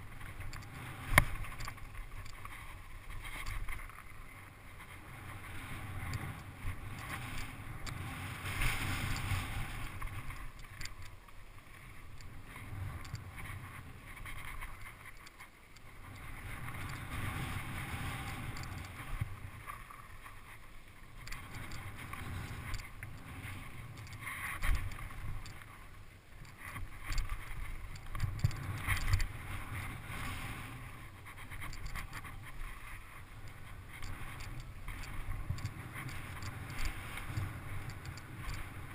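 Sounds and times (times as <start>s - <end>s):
wind rushing over microphone: 4.4s - 10.8s, 16.0s - 19.7s.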